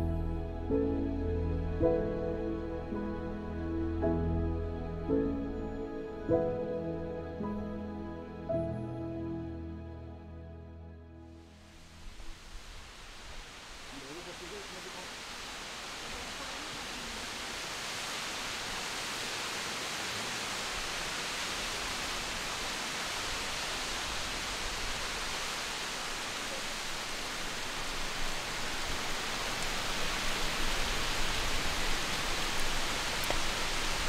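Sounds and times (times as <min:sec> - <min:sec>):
rushing water hiss: 0:11.4 - 0:34.0.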